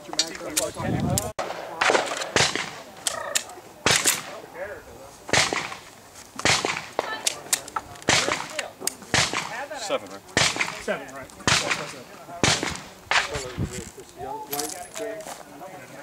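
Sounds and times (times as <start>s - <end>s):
handgun shots: 1.4s - 2.8s, 3.4s - 4.4s, 6.4s - 9.6s, 11.5s - 13.4s.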